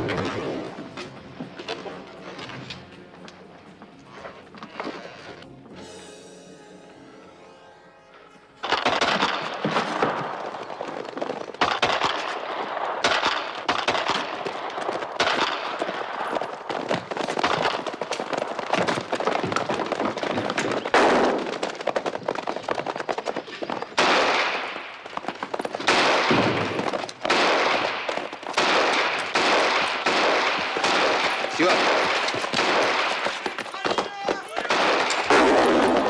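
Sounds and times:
rapid gunfire: 0:08.6 - 0:22.5, 0:24.0 - 0:36.0.

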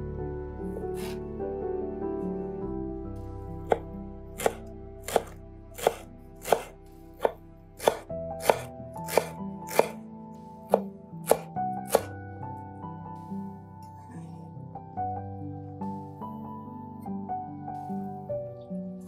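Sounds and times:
soft background music: 0:00.0 - 0:19.0
knife chopping on wooden board: 0:01.0 - 0:01.2, 0:03.6 - 0:10.0, 0:10.7 - 0:12.1.

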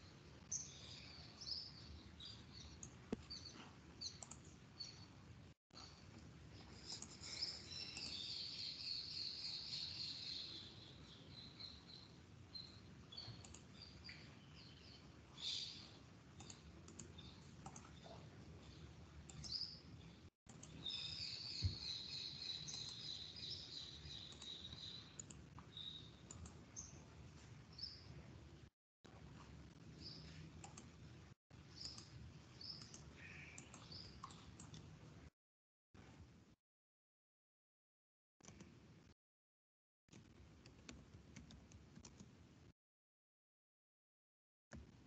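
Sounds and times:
faint bird chirping: 0:00.0 - 0:05.2, 0:05.8 - 0:28.2, 0:29.6 - 0:30.9, 0:31.6 - 0:34.6
computer mouse and keyboard clicks: 0:02.7 - 0:04.9, 0:05.8 - 0:08.3, 0:13.2 - 0:13.8, 0:16.4 - 0:19.7, 0:24.2 - 0:26.9, 0:30.6 - 0:31.0, 0:31.8 - 0:34.9, 0:38.4 - 0:38.8, 0:40.1 - 0:42.4.

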